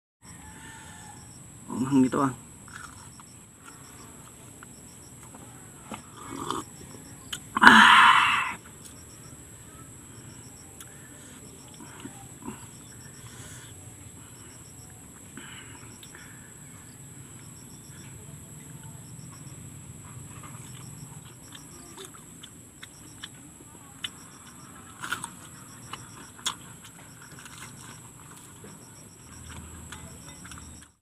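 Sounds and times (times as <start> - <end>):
high chirps: 0.2 - 31.0
person chewing crispy food: 2.7 - 4.7, 20.2 - 31.0.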